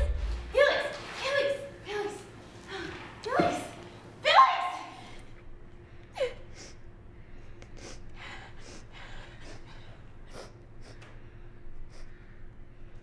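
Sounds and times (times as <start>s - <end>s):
woman sobbing: 6.2s - 6.8s.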